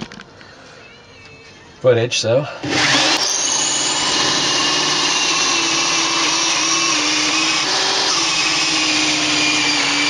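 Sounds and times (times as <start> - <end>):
electric drill cutting wood: 2.6 - 10.0.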